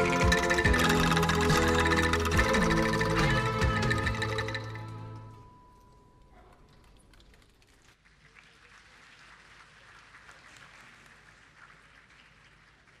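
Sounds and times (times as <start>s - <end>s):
ringing angklung note: 0.0s - 5.8s
audience applause: 6.8s - 13.0s.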